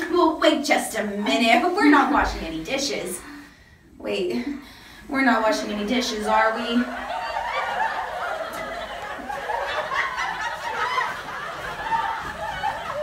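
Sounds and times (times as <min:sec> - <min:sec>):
laugh track: 0:06.8 - 0:13.0.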